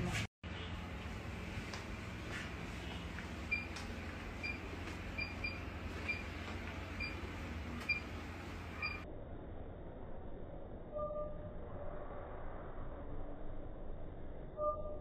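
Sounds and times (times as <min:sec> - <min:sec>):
steady low hum: 0:00.0 - 0:15.0
patient monitor beeping: 0:03.1 - 0:09.0.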